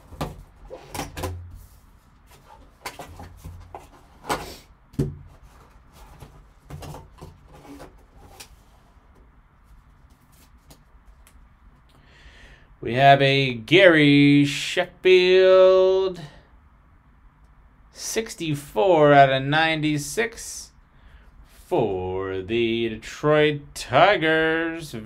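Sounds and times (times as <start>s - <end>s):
cardboard and plastic handling rustles: 0.0s - 11.2s.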